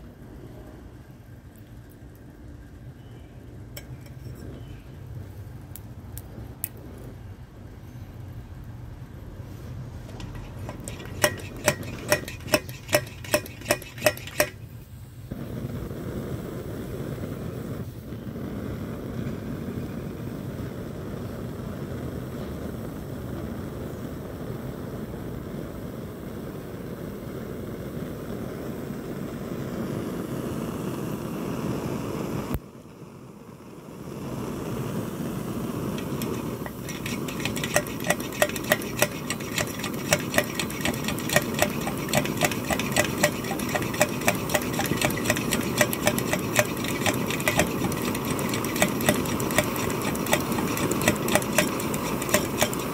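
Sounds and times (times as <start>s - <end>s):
stove burner rushing: 0.0s - 8.1s, 9.2s - 25.6s, 33.6s - 52.9s
stove pump squeaky clicks: 10.0s - 14.7s, 36.0s - 52.9s.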